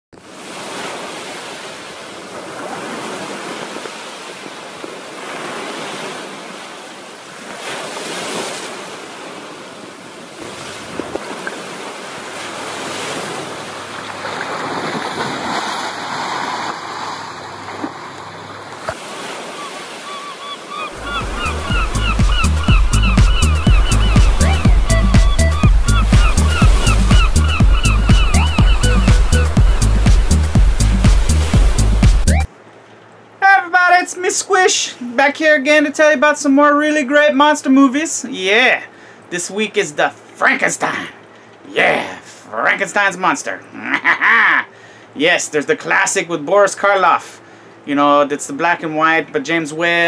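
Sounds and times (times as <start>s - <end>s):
surf breaking against rocks: 0.2s - 20.2s
gull calling: 19.2s - 32.5s, 43.7s - 44.7s
music with heavy low beat: 21.0s - 32.5s.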